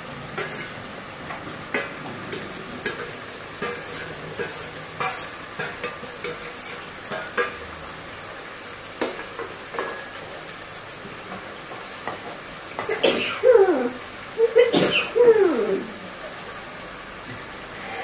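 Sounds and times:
curry sizzling: 0:00.0 - 0:18.0
spatula scraping pan: 0:00.4 - 0:00.9, 0:01.7 - 0:07.6.

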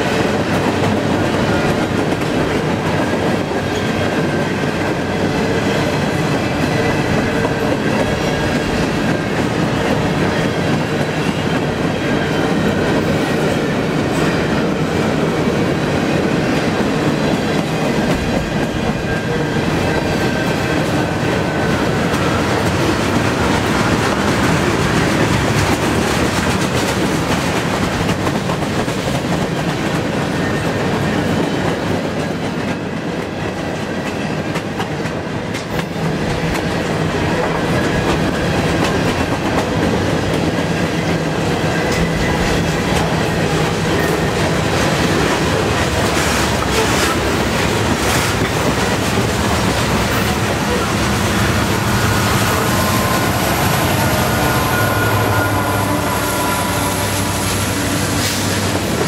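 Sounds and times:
train wheels rumbling on rail: 0:00.0 - 0:59.0
faint high-pitched wheel squeal: 0:54.3 - 0:57.6.

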